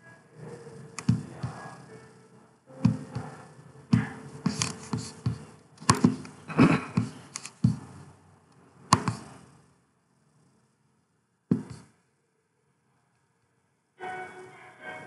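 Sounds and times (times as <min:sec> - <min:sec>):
keyboard typing: 0:00.9 - 0:02.0, 0:02.8 - 0:08.0
computer mouse clicks: 0:04.5 - 0:06.4, 0:07.0 - 0:07.8.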